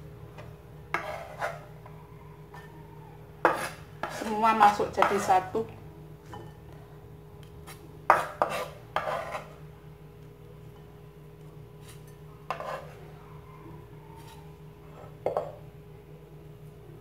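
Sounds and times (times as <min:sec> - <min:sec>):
low steady hum: 0:00.0 - 0:17.0
cleaver scraping a ceramic bowl: 0:00.9 - 0:01.8, 0:03.4 - 0:05.4, 0:08.1 - 0:09.6, 0:11.8 - 0:13.1.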